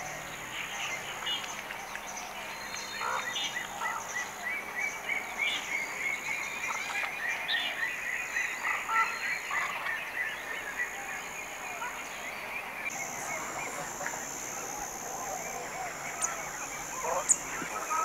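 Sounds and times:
high insect drone: 0:12.8 - 0:18.0
animal calls repeated rapidly: 0:13.0 - 0:18.0.

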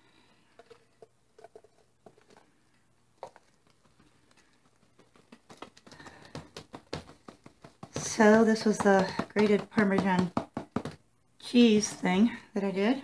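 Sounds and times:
box tapping against plastic jar: 0:05.0 - 0:11.0.

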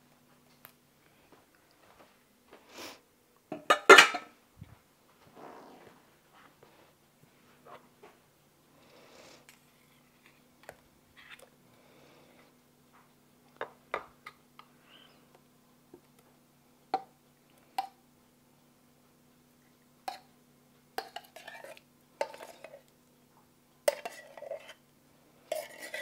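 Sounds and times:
metal spoon scraping tin can: 0:25.5 - 0:26.0.

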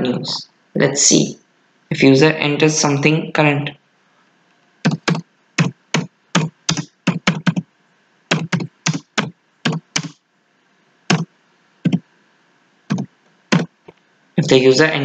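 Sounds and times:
keyboard keys clicking: 0:04.9 - 0:07.6, 0:08.3 - 0:10.2, 0:12.9 - 0:13.7.

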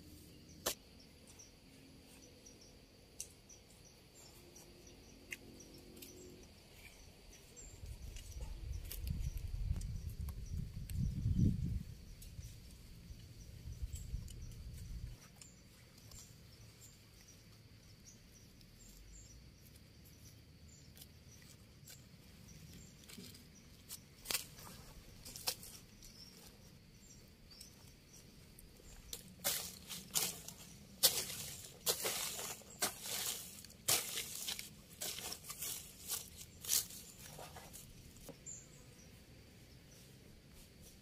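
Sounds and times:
hands scraping soil: 0:27.5 - 0:38.4.

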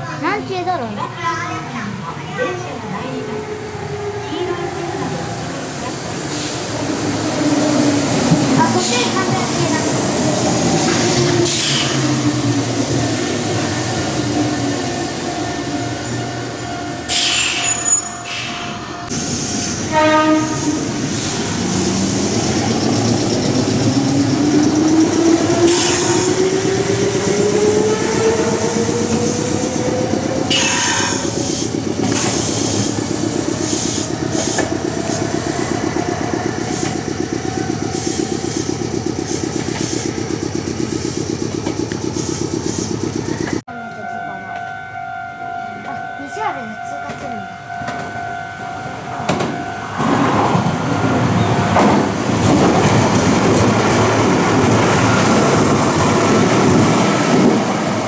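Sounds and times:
train wheels running rhythmically: 0:00.1 - 0:44.7, 0:45.8 - 0:58.0
train horn blast: 0:19.8 - 0:20.9, 0:30.5 - 0:31.4
traction motors whining: 0:20.5 - 0:43.6.

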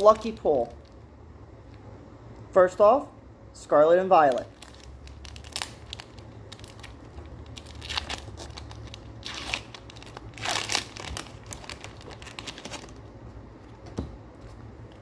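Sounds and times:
foil wrapper crinkling and tearing: 0:00.0 - 0:01.0, 0:04.2 - 0:13.1.

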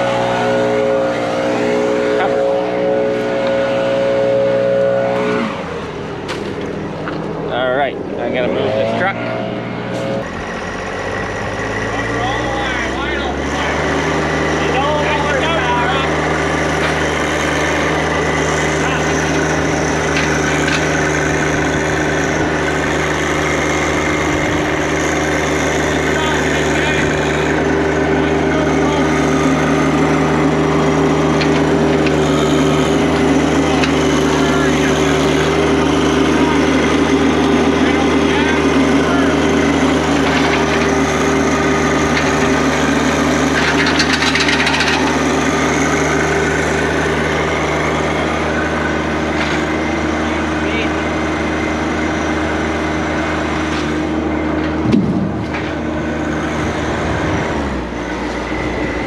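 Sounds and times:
tractor engine running: 0:00.0 - 0:59.0
rough scraping rasp: 0:08.3 - 0:50.0.

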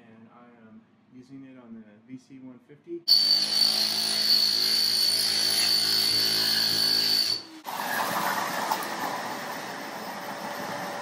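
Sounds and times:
demolition hammer whining: 0:03.1 - 0:11.0.

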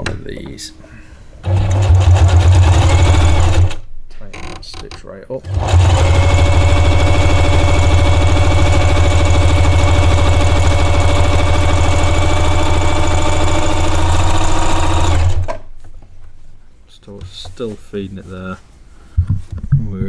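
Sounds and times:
sewing machine running: 0:01.4 - 0:03.8, 0:05.4 - 0:15.6.

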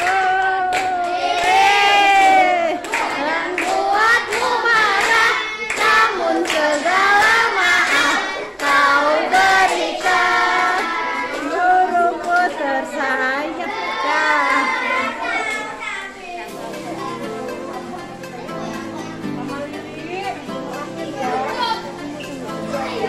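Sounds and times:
children singing: 0:00.0 - 0:16.7.

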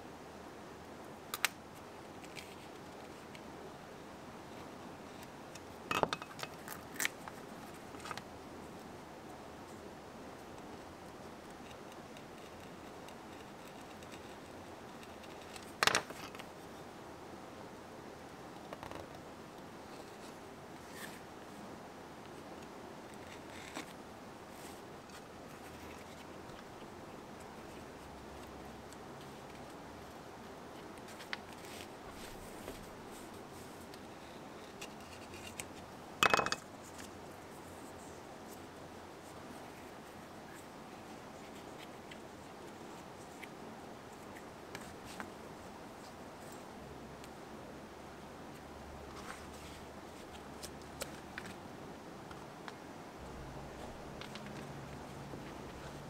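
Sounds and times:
faint room noise: 0:00.0 - 0:56.0
knife clattering on wooden bench: 0:36.2 - 0:36.6.

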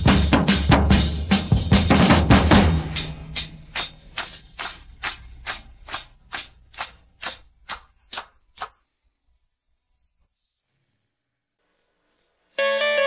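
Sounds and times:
drum beat: 0:00.0 - 0:08.6.

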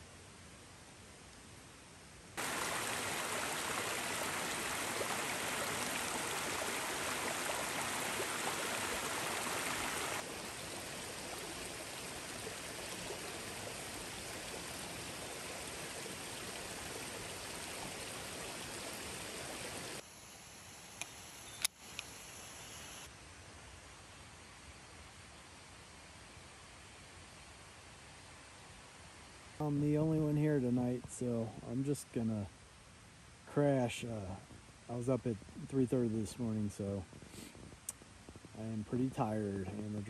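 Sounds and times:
mountain stream rushing: 0:02.4 - 0:20.0.

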